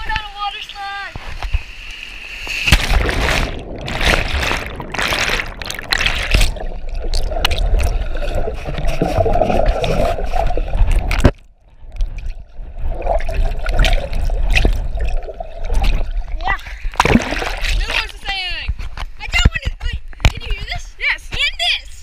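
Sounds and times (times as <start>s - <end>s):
muffled underwater rushing water: 1.2s - 18.0s
water splashing: 1.2s - 18.3s.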